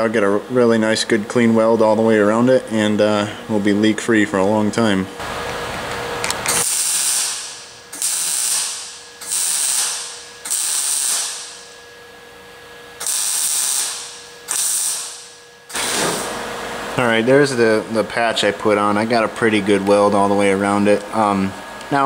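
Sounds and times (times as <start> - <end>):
welder arc crackling: 5.2 - 11.8, 13.0 - 16.4.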